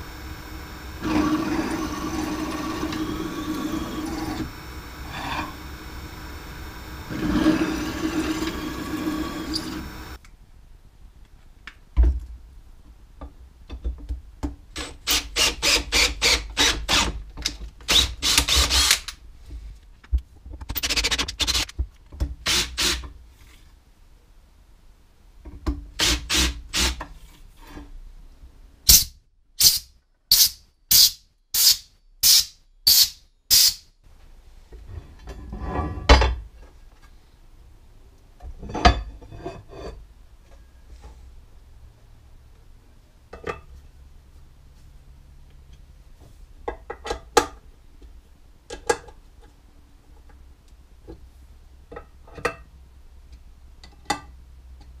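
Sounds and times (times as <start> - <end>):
cordless drill bursts: 0.2 - 10.2, 15.1 - 17.2, 17.9 - 19.1, 22.4 - 23.0, 26.0 - 27.0, 30.4 - 33.8.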